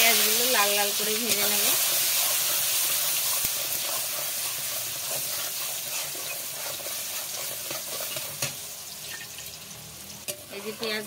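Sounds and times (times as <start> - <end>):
onions sizzling in hot oil: 0.0 - 11.0
metal spatula scraping pan: 1.2 - 9.3.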